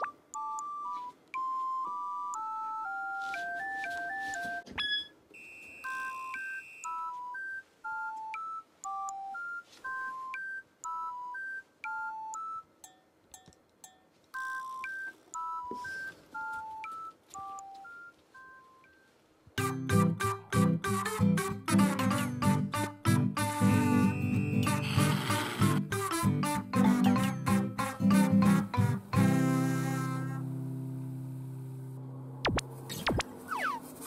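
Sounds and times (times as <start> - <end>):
electronic beeping melody: 0.0 - 12.7, 14.4 - 21.4, 23.3 - 27.7.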